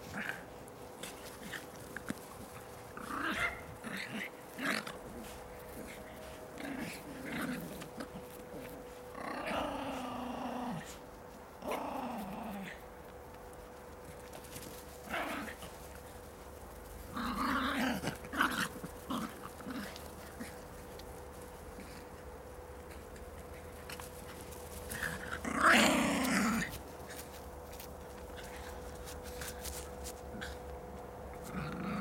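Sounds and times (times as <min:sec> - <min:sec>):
dogs growling in play: 0:00.0 - 0:13.3, 0:13.9 - 0:32.0.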